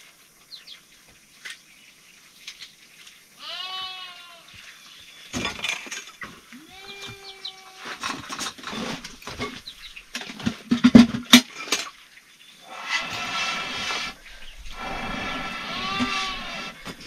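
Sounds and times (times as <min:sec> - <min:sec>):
sheep or goat bleating: 0:03.4 - 0:04.6, 0:06.5 - 0:08.0, 0:14.7 - 0:17.0
sharp knocks and clatter: 0:08.0 - 0:12.0.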